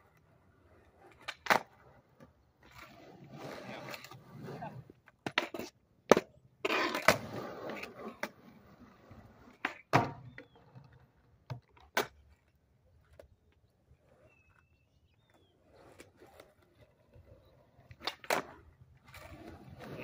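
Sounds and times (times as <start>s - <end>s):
skateboard wheels rolling on concrete: 0.0s - 20.0s
skateboard clacks: 1.1s - 1.8s, 9.5s - 12.5s.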